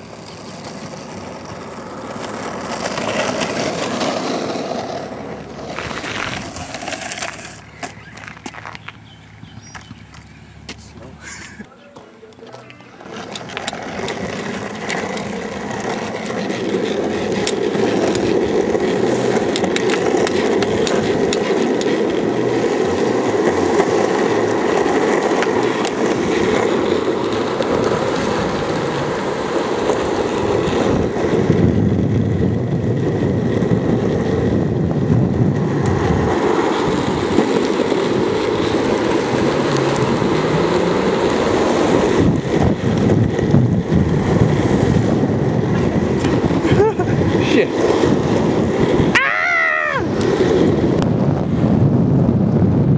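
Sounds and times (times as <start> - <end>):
longboard wheels rolling on asphalt: 0.0 - 52.9
wind rushing over microphone: 26.0 - 52.9.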